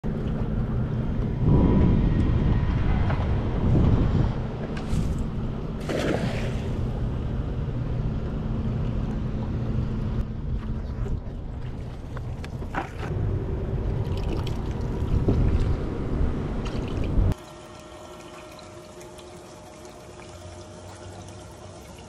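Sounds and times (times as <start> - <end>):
low rumble: 0.1 - 17.4
net splashing into water: 5.8 - 6.8.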